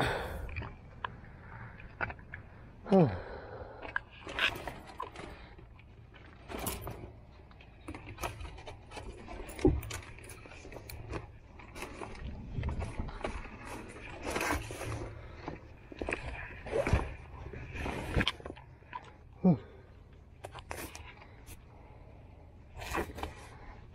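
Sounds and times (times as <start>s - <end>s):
knocks clicks and scrapes of gear: 3.9s - 19.3s, 20.1s - 22.0s, 22.7s - 23.9s.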